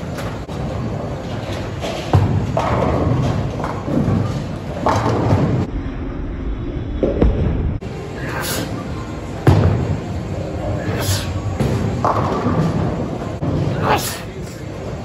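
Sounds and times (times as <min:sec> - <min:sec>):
low rumble of rolling balls: 0:00.0 - 0:08.2.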